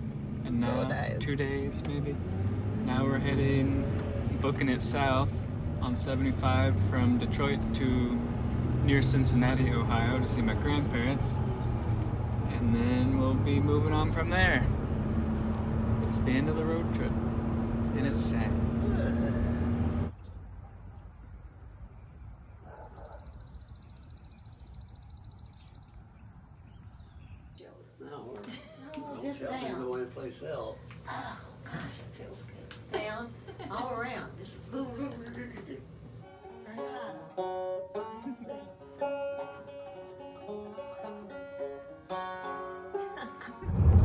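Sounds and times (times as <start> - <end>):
engine and road noise in cab: 0.0 - 20.6, 43.6 - 44.0
banjo picking: 36.2 - 43.7.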